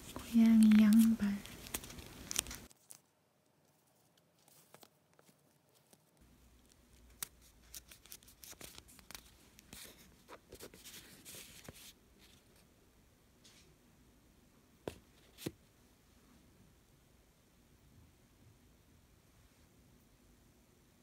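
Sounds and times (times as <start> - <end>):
paper envelopes rustling: 0.0 - 3.0, 3.6 - 12.4.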